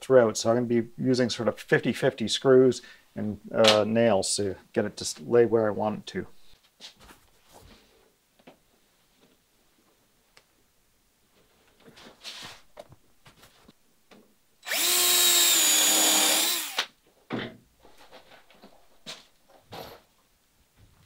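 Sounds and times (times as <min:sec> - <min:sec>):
cordless drill driving a screw: 0:14.6 - 0:16.9
thump: 0:17.3 - 0:17.6.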